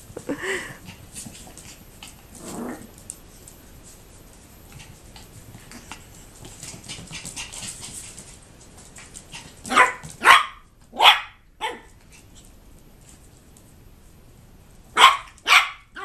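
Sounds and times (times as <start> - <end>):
dogs scuffling and clicking: 0.8 - 10.3
small dog barking: 9.7 - 11.9, 14.9 - 16.0.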